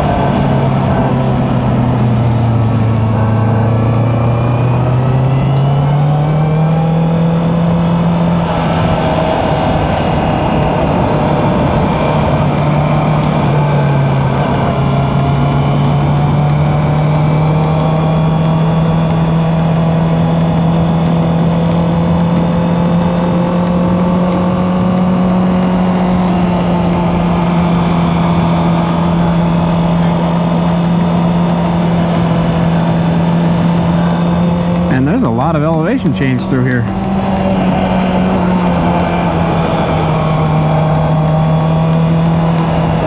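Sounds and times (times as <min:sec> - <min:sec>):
motorcycle engine cruising: 0:00.0 - 0:43.0.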